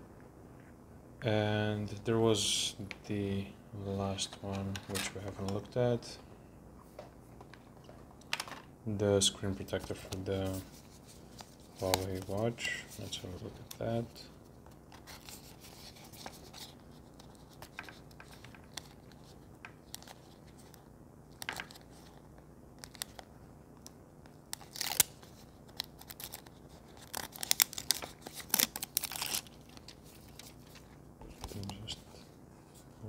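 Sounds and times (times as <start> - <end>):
packaging crinkles and clicks: 22.8 - 30.8.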